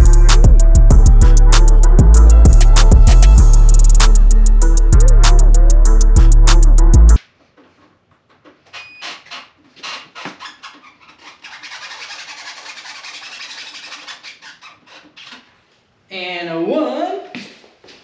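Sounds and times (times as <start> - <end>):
hip-hop beat: 0.0 - 7.2.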